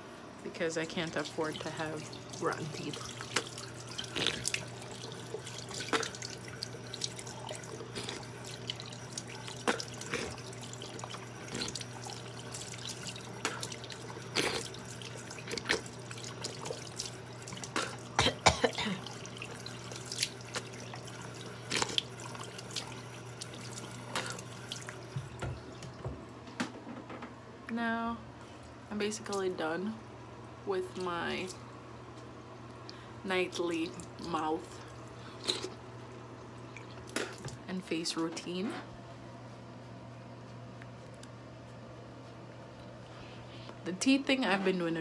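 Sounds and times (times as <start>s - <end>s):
water splashing and dripping: 1.0s - 26.2s
tap running into sink: 25.0s - 27.2s.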